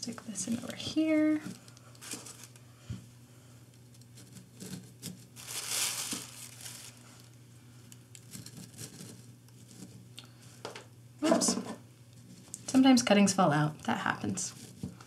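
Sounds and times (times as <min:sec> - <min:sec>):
rustling of potting soil: 0:00.1 - 0:02.6, 0:04.0 - 0:07.5, 0:14.0 - 0:15.0
scraping rustle: 0:04.1 - 0:07.4, 0:08.3 - 0:10.0, 0:14.4 - 0:15.0.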